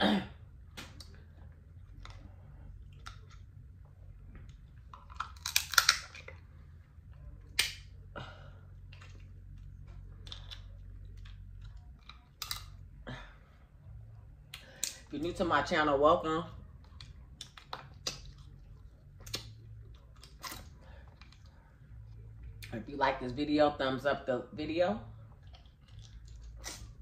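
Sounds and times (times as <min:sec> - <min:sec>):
low steady hum: 0:00.0 - 0:27.0
crab shell cracking: 0:04.9 - 0:06.3
wet chewing: 0:25.3 - 0:27.0.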